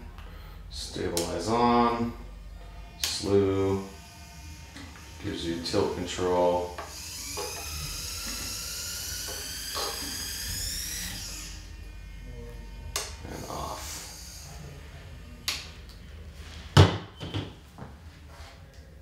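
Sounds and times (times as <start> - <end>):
gimbal motors whining: 0.0 - 17.3.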